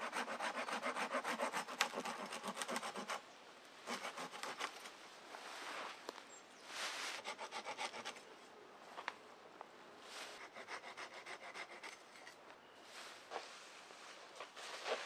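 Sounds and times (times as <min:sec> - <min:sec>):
hand saw cutting branches: 0:00.0 - 0:03.2, 0:03.8 - 0:04.9, 0:07.1 - 0:08.2, 0:10.3 - 0:12.4
pine needles rustling: 0:04.4 - 0:07.3, 0:12.4 - 0:15.0.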